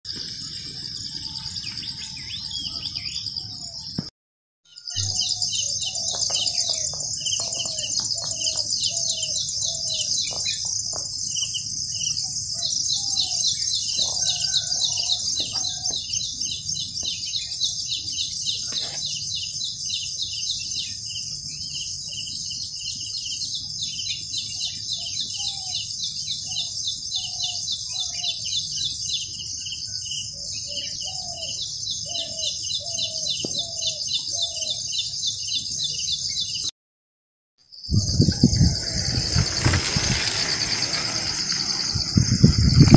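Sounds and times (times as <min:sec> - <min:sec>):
birds calling: 0:04.8 - 0:36.7, 0:37.8 - 0:42.9
insects trilling shrilly: 0:37.9 - 0:42.9.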